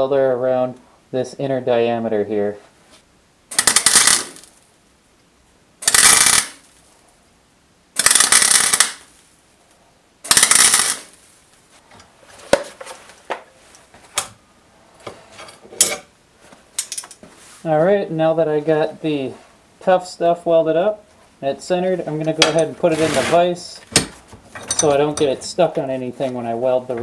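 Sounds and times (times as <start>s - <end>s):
welding arc bursts: 3.5s - 4.5s, 5.8s - 6.6s, 8.0s - 9.1s, 10.2s - 11.2s.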